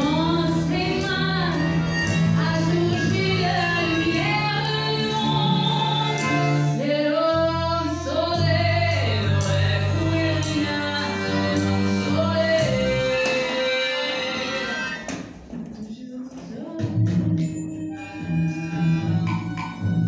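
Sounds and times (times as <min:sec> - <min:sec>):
bass line: 0:00.0 - 0:15.0
woman singing: 0:00.0 - 0:15.0, 0:15.7 - 0:19.2.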